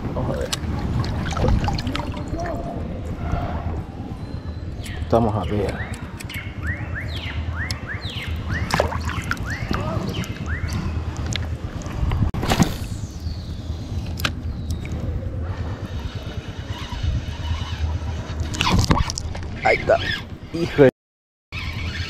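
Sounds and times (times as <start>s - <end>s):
low rumble: 0.0s - 5.1s
bird chirping: 4.1s - 11.1s, 12.9s - 15.2s
fishing reel whirring: 15.6s - 18.6s, 21.6s - 22.0s.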